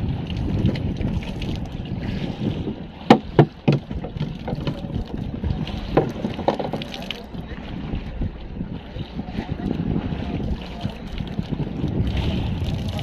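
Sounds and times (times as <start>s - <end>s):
wind buffeting microphone: 0.0s - 13.0s
sharp knocks: 3.1s - 4.8s.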